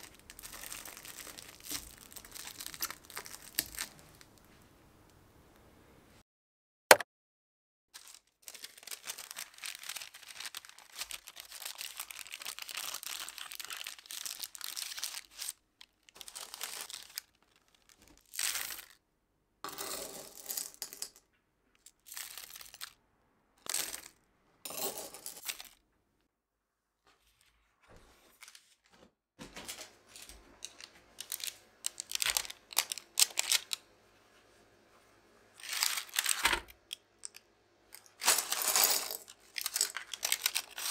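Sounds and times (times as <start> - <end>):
parchment paper crinkling: 0.0 - 4.5, 8.0 - 19.0, 22.0 - 23.0, 27.2 - 33.8, 35.6 - 36.9, 38.0 - 40.9.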